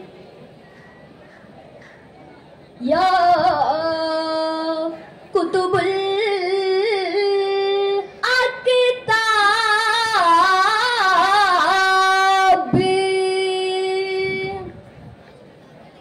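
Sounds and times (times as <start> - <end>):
boy singing devotional verse: 2.8 - 14.8.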